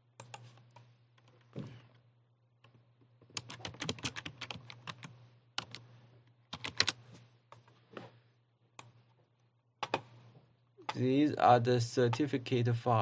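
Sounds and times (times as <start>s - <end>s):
typing on computer keyboard: 3.3s - 5.8s, 6.5s - 7.0s.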